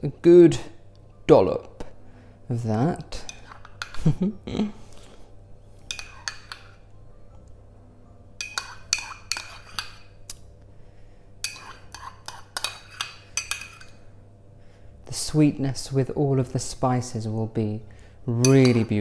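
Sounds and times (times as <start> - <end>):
metal spoon clinking on ceramic pot: 5.9 - 6.8, 8.4 - 10.0, 11.4 - 13.9, 18.4 - 19.0.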